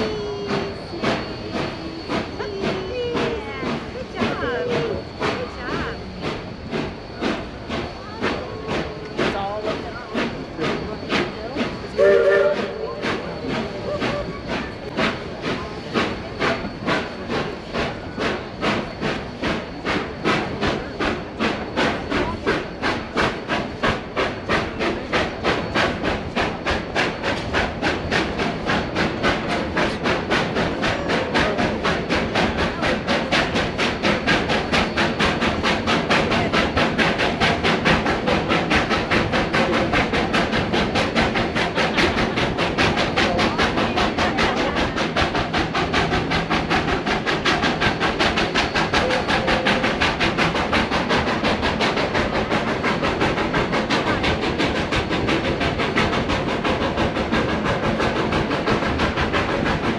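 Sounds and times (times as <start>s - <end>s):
steam locomotive chuffing: 0.0s - 59.9s
train whistle: 11.9s - 14.4s.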